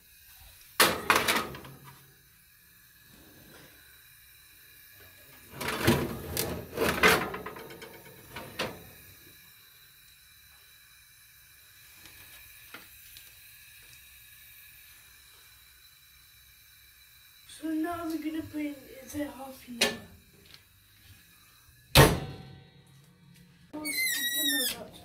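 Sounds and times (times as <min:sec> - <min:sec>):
metal tray scraping on oven rack: 0:05.5 - 0:09.0.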